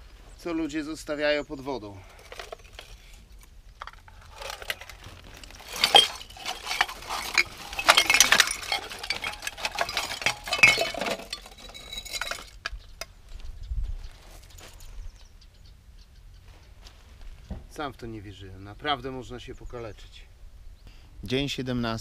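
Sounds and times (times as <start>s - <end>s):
glass bottles clinking: 4.3s - 12.7s.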